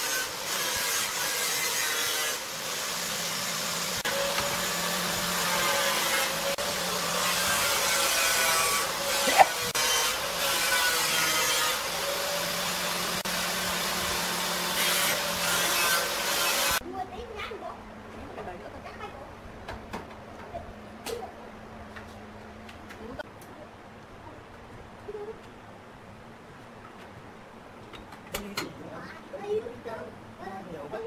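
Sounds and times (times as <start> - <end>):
workshop machine noise: 0.0 - 18.6.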